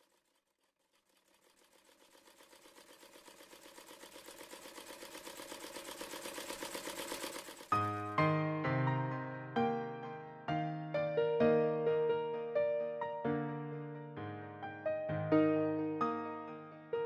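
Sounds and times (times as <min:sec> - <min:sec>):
sewing machine stitching: 0:00.0 - 0:08.1
piano chord: 0:07.7 - 0:17.0.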